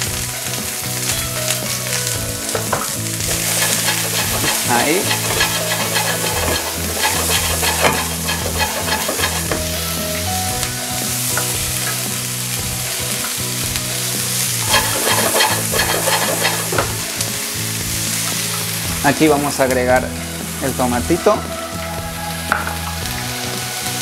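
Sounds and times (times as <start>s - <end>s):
onion sizzling in a frying pan: 0.0s - 24.0s
wooden spoon scraping a pan: 2.4s - 10.4s, 14.6s - 17.2s.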